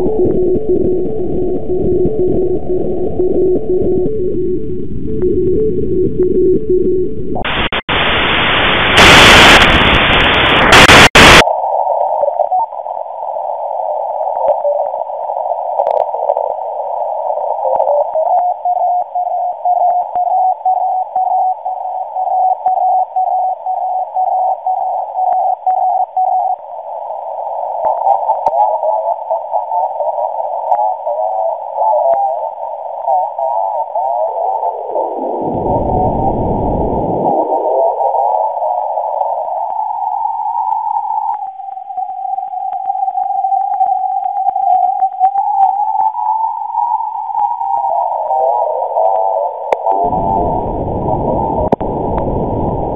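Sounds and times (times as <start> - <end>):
warbling digital data tones: 5.3 - 11.4, 12.0 - 52.9
loud static blast: 7.4 - 11.4
radio static hiss: 7.4 - 52.9.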